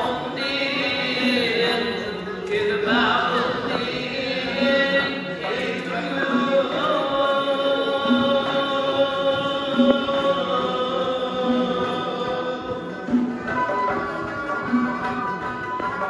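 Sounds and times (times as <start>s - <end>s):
frame drum beating: 8.0s - 16.0s
plucked lute melody: 9.4s - 16.0s.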